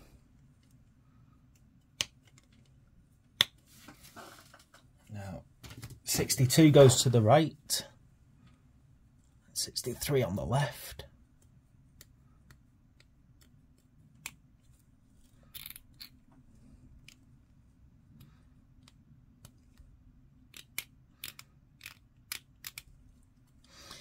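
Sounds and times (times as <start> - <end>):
small plastic parts clicking: 1.4 - 2.8, 15.2 - 17.3, 18.1 - 23.6.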